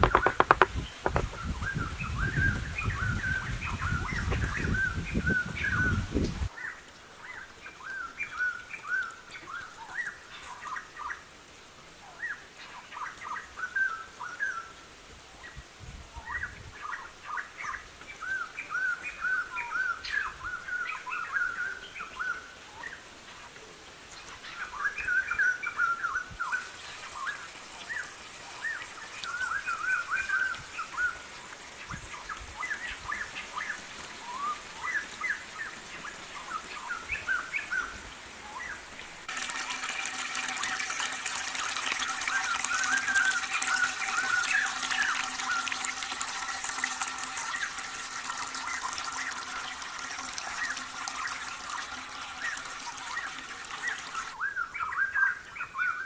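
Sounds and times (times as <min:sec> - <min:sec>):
birds chirping: 0:00.0 - 0:11.2, 0:24.1 - 0:56.0.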